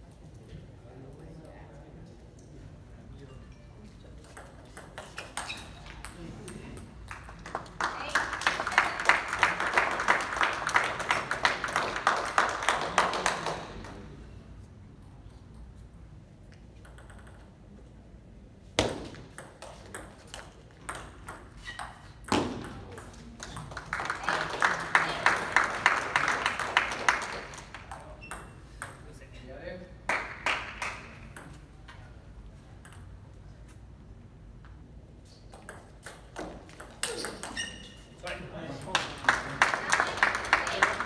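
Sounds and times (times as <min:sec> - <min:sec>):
spectators clapping: 0:07.0 - 0:14.0, 0:23.3 - 0:27.9, 0:30.1 - 0:31.2, 0:38.9 - 0:41.0.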